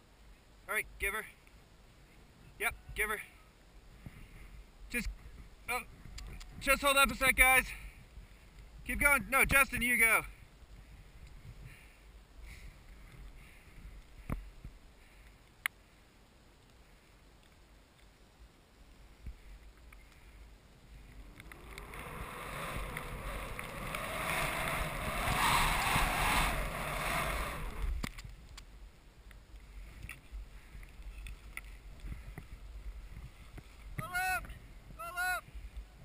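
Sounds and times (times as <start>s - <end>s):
skis hissing through snow: 20.3s - 28.0s.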